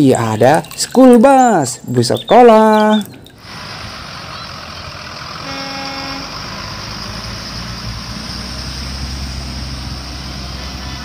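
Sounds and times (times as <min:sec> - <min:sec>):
diesel bus engines running: 0:01.5 - 0:11.0
tyres hissing on wet road: 0:03.4 - 0:11.0
short horn toot: 0:05.4 - 0:06.3.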